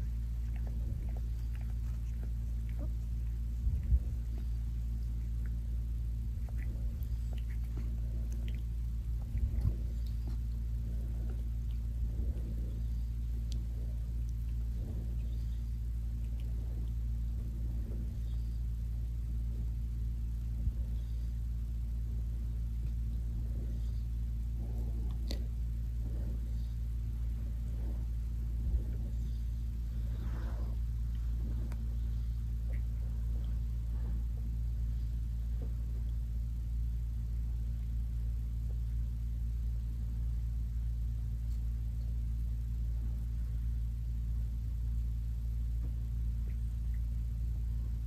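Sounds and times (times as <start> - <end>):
cat licking fur: 0.0 - 36.4
steady low hum: 0.0 - 48.0.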